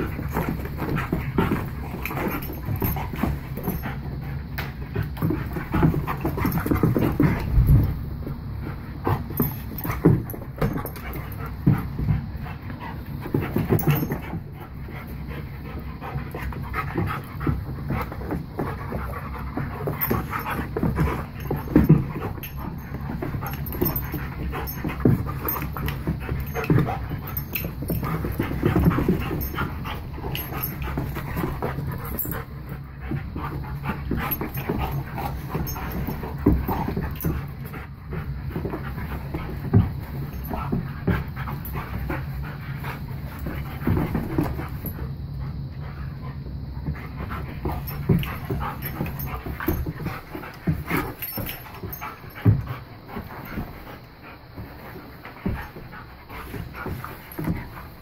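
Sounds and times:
dogs panting: 0:00.0 - 0:58.0
dogs scuffling: 0:00.0 - 0:58.0.

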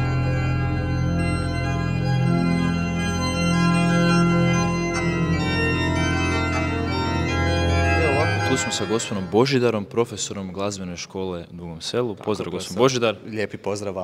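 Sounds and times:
church organ chords: 0:00.0 - 0:10.4.

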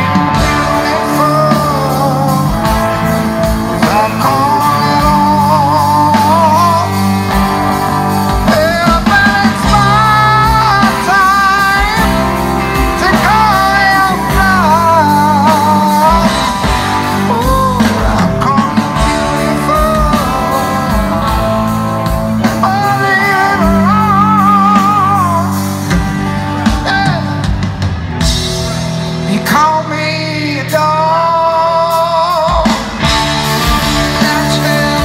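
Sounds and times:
person singing: 0:00.0 - 0:35.0
rock band playing live: 0:00.0 - 0:35.0.

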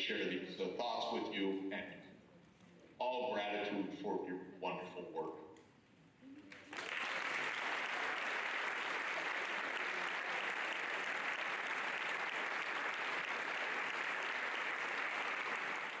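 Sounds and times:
audience applauding: 0:06.5 - 0:16.0.

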